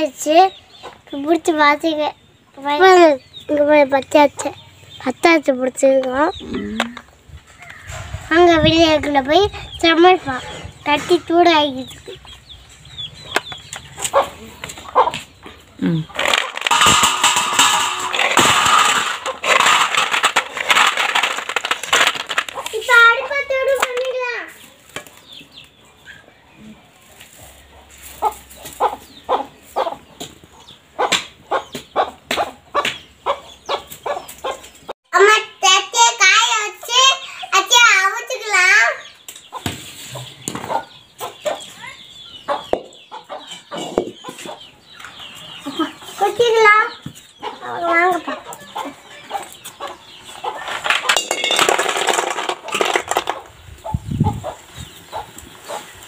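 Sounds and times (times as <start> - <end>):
hens clucking: 0.5 - 1.3, 6.0 - 24.0, 24.6 - 34.9, 39.0 - 51.3
snail shells clattering on metal: 16.1 - 23.0, 50.5 - 53.6.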